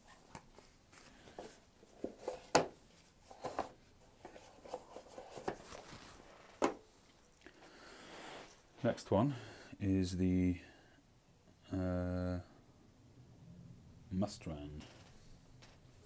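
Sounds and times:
packaging rustling: 4.4 - 6.6.

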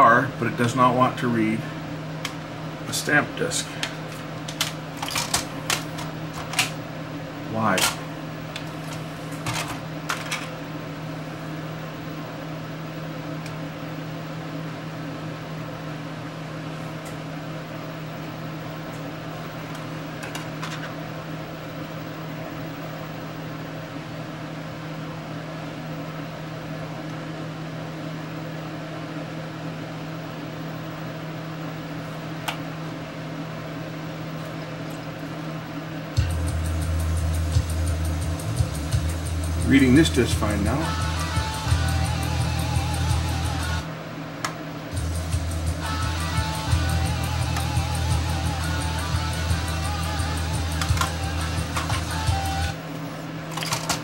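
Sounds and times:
cd player motor whirring: 36.1 - 52.8.

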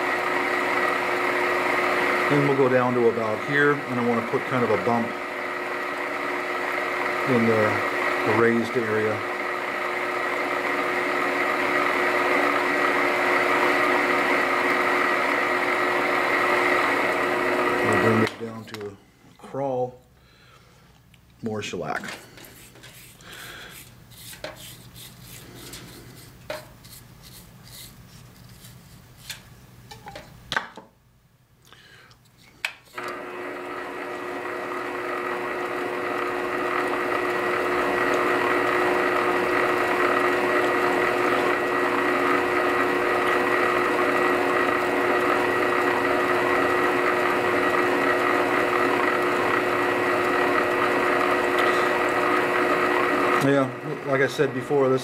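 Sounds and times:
lathe motor hum and whine: 0.0 - 18.5, 32.9 - 55.0
brush applying shellac: 22.4 - 29.4.

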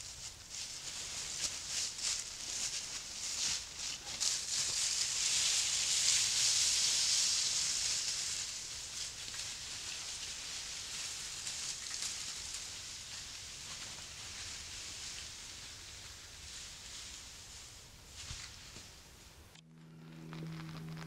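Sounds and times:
footsteps in leaf litter: 0.0 - 18.8
tree dragged through dry leaves: 0.0 - 18.8.

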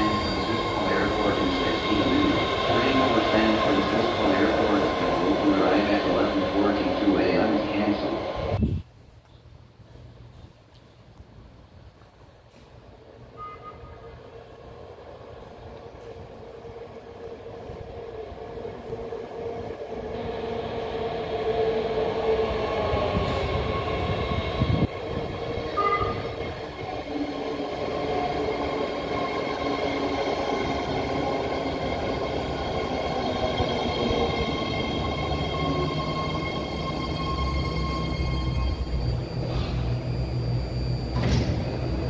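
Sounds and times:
train wheels on rail: 18.8 - 42.0.

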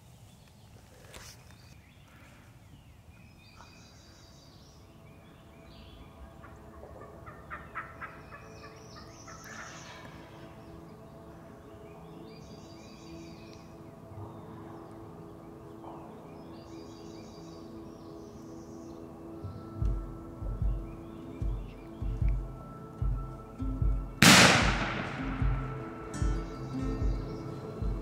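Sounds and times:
turkey gobbling: 6.4 - 10.0.

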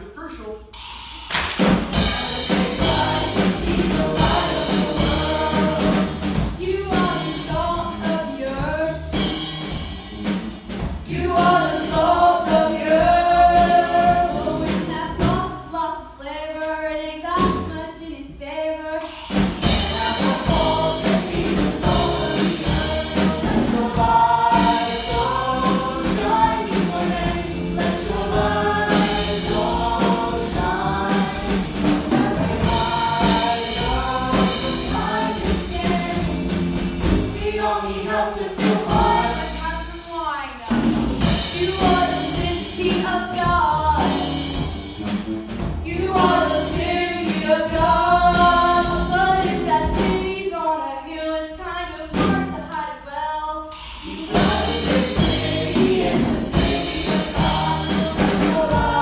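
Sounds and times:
live band with drums: 0.6 - 15.7, 17.3 - 17.8, 19.0 - 50.5, 52.1 - 52.8, 53.6 - 59.0
chorus singing: 1.6 - 10.0, 10.7 - 15.7, 19.3 - 39.9, 45.8 - 52.7, 53.6 - 59.0.

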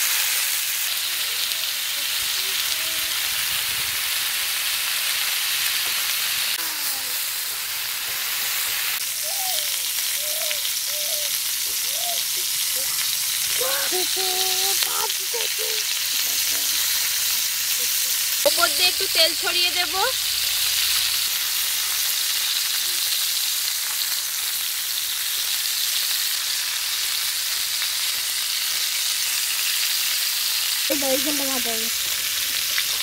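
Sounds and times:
kebabs sizzling in hot oil: 0.0 - 33.0.

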